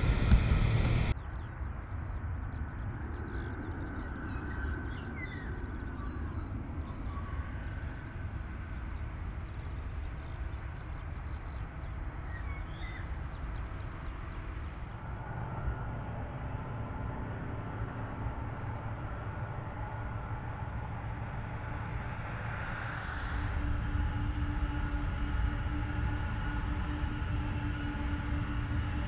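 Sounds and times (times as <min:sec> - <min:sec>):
low outdoor rumble: 0:00.0 - 0:29.0
bird chirps: 0:01.1 - 0:14.6.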